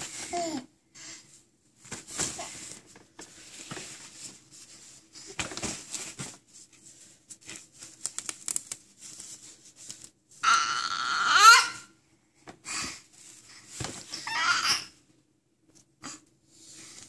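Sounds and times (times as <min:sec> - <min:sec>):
plush toys rustling and crinkling: 0:01.4 - 0:10.4, 0:13.1 - 0:14.4.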